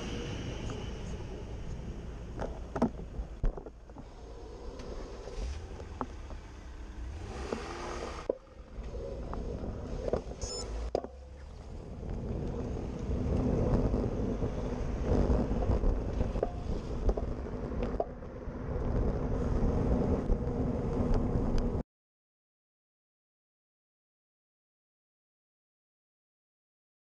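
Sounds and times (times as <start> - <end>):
bike road rumble: 0.0 - 21.8
wind buffeting: 0.0 - 21.8.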